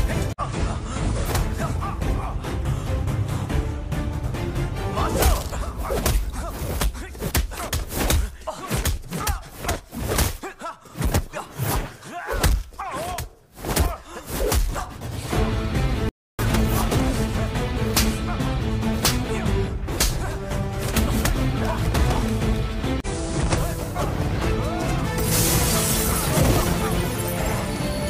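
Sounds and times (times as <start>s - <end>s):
action background music: 0.0s - 9.0s, 14.5s - 28.0s.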